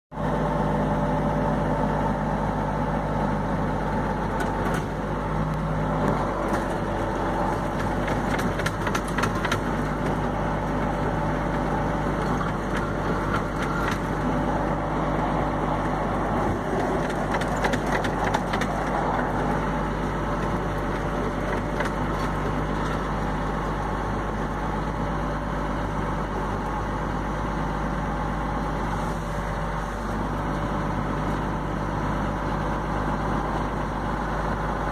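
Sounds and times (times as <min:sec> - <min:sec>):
tractor engine running: 0:00.1 - 0:34.9
metal crunching and crackling: 0:06.0 - 0:24.7.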